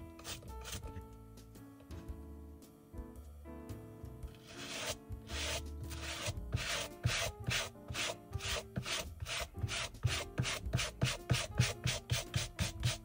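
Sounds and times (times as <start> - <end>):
soft background music: 0.0 - 13.0
brush scrubbing suede: 4.4 - 13.0.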